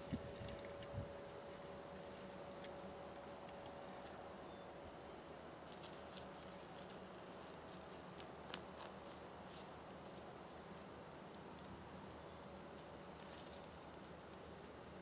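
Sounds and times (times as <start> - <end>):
soil crackling and clicking: 5.7 - 14.4.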